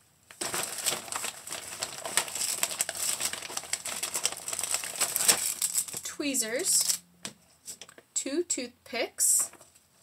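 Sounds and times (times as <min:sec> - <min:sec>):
plastic bag crinkling: 0:00.3 - 0:07.0.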